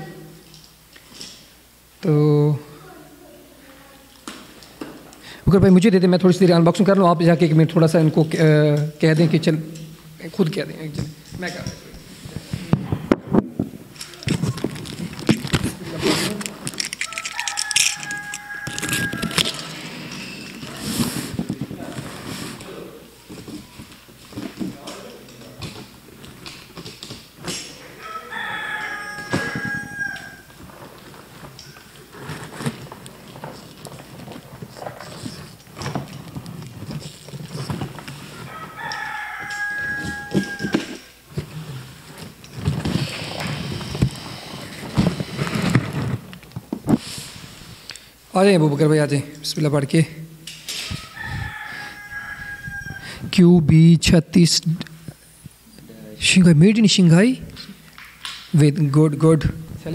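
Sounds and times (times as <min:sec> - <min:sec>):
plastic wrap and cardboard rustling: 0:14.0 - 0:27.4, 0:28.3 - 0:47.6
rooster crowing: 0:17.0 - 0:20.8, 0:27.8 - 0:30.8, 0:38.3 - 0:41.2, 0:50.8 - 0:53.3.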